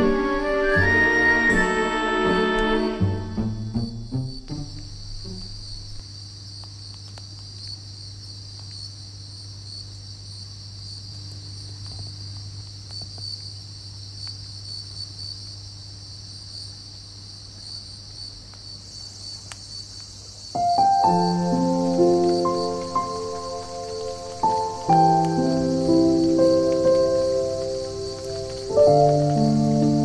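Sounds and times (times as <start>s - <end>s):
crickets chirping: 0.8s - 30.0s
low hum: 1.6s - 6.0s.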